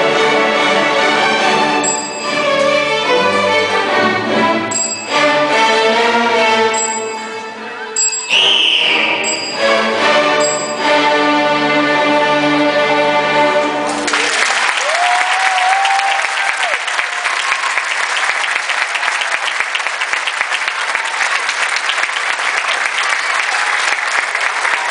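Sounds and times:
string orchestra holding a chord: 0.0s - 13.9s
person cheering: 14.8s - 17.8s.

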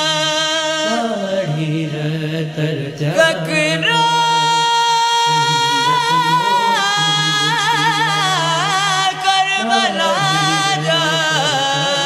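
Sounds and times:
person singing: 0.0s - 12.0s.

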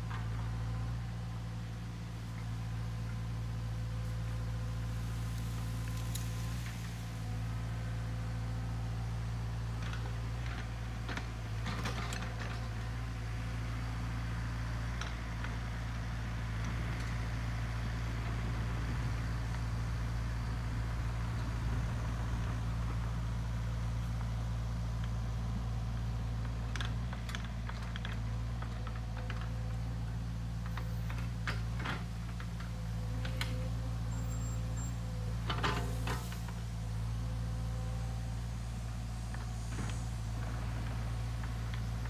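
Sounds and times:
distant diesel excavator engine: 0.0s - 42.0s.

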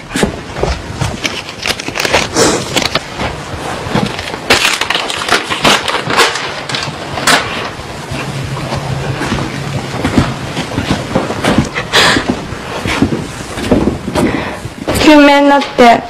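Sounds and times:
paper rustling and crinkling: 0.3s - 8.6s.

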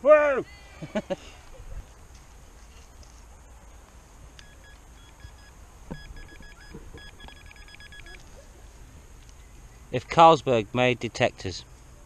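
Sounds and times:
metal detector beeping: 4.4s - 8.2s.

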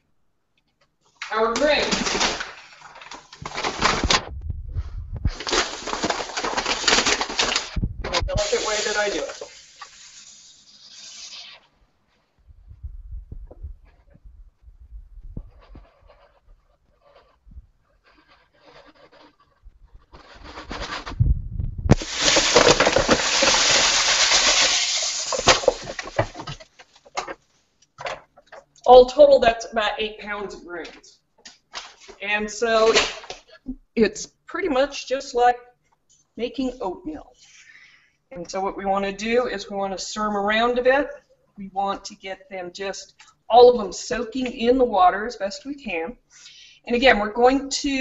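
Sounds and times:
grains poured into a kettle: 8.4s - 11.4s, 22.0s - 26.3s.

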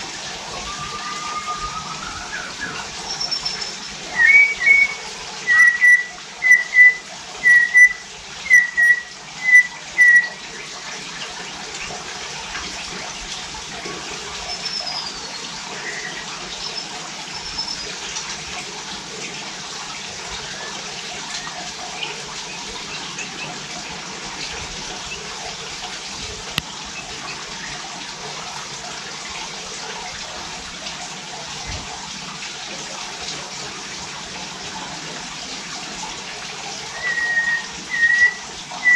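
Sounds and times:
bird whistling: 0.5s - 10.4s, 14.5s - 17.8s, 36.9s - 38.9s
faint bird calls: 0.5s - 10.4s.

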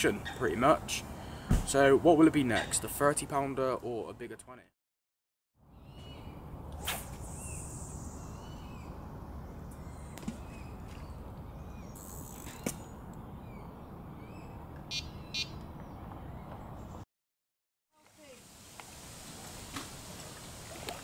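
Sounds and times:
small birds chirping: 7.3s - 17.0s.

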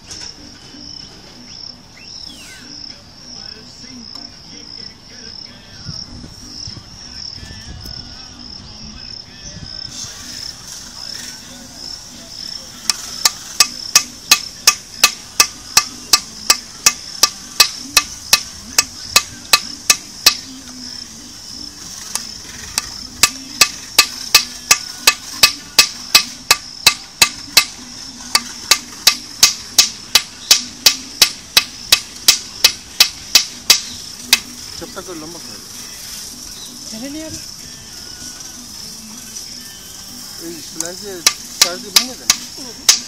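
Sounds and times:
hammer tapping: 12.9s - 20.5s, 22.1s - 34.5s, 41.2s - 43.0s.

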